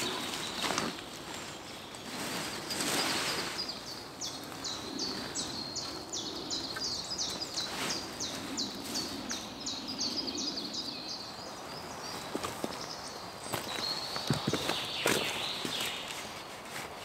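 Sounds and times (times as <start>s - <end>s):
faint forest background: 0.0s - 17.0s.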